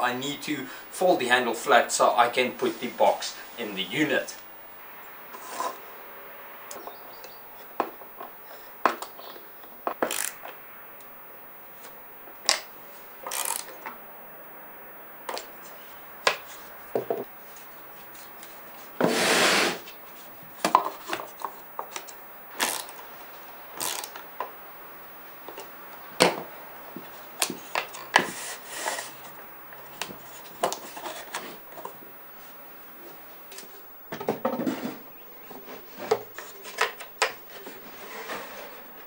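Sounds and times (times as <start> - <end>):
rubbing noises: 17.4 - 22.0.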